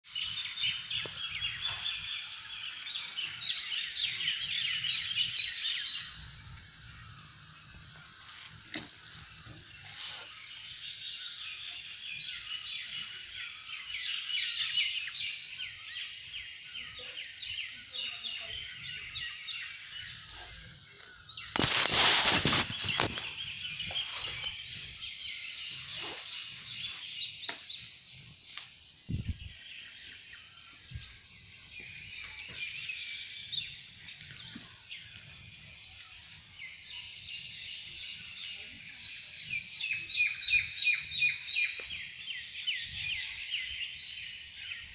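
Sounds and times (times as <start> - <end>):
birds chirping: 0.0 - 44.9
microphone handling noise: 21.4 - 25.0, 29.1 - 29.6.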